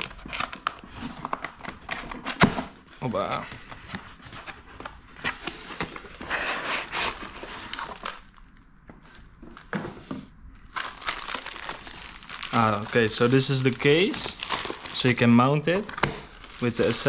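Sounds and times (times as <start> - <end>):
cardboard rustling and scraping: 1.9 - 8.1.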